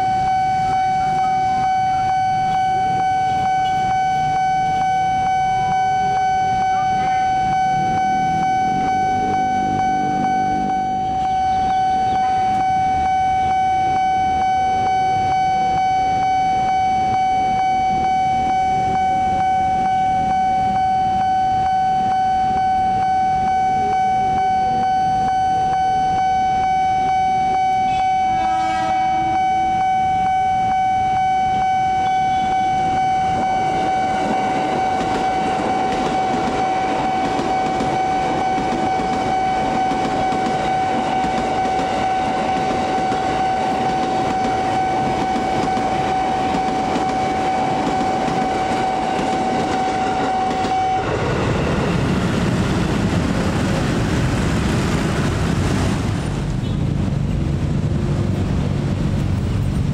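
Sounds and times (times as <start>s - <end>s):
level crossing warning tone: 0.0s - 56.6s
electric train passing: 0.0s - 59.9s
street traffic: 0.0s - 59.9s
horn: 28.3s - 29.5s.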